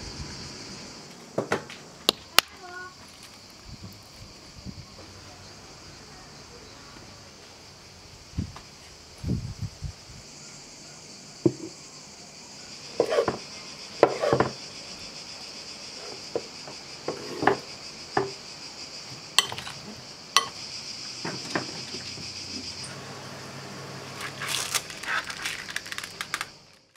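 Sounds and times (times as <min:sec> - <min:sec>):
insects chirring: 0:00.0 - 0:26.9
knife cutting on wooden board: 0:13.0 - 0:13.4, 0:14.0 - 0:14.5
spoon clinking glass bowl: 0:19.4 - 0:19.7.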